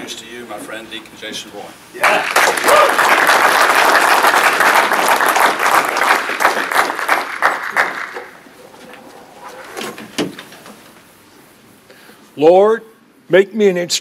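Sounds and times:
audience applauding: 2.0s - 9.1s.

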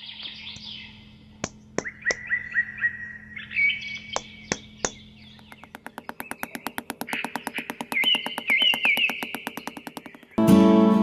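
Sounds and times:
birds chirping: 0.0s - 10.4s
sharp clicks: 4.0s - 10.4s.

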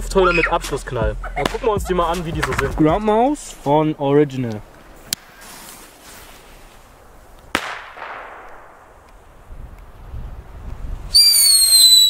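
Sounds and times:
firework bang: 7.5s - 9.0s
firework high piercing whistle: 11.1s - 12.0s.

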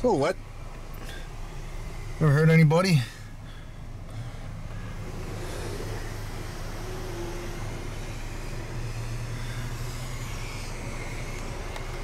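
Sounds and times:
car engine running: 0.0s - 12.0s
road noise inside car: 0.0s - 12.0s.

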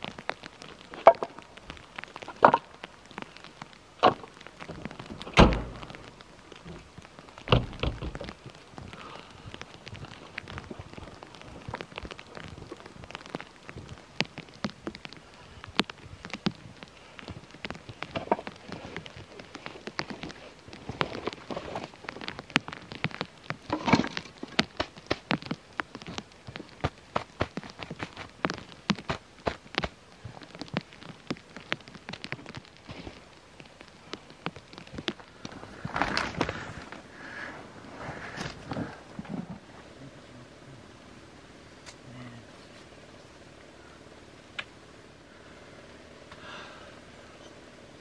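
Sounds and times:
wet snow pattering on a tent: 0.0s - 40.8s
hatch shutting with metal clunks: 5.3s - 5.8s.

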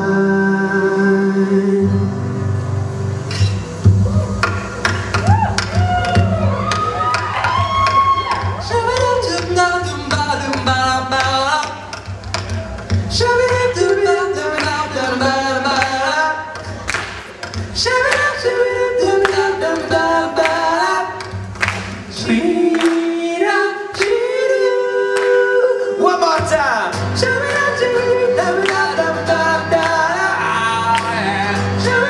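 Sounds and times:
voices singing without words: 0.0s - 2.3s, 13.1s - 32.0s
strummed acoustic guitar: 26.1s - 32.0s.

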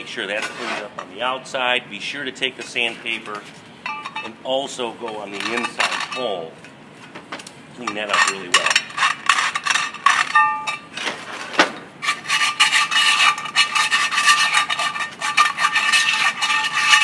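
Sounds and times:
metallic ring from drum: 3.8s - 4.3s, 10.3s - 10.9s
sandpaper scrubbing on metal drum: 12.0s - 17.0s.

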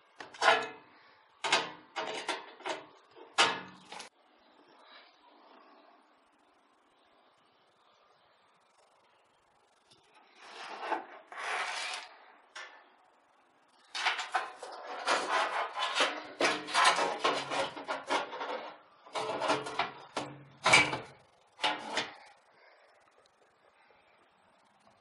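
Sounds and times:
metal scraping against metal frame: 10.4s - 12.7s, 13.9s - 22.2s.

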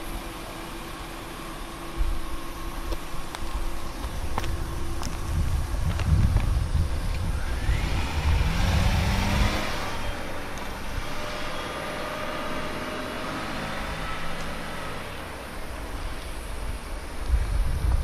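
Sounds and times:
car driving past: 7.2s - 16.2s.

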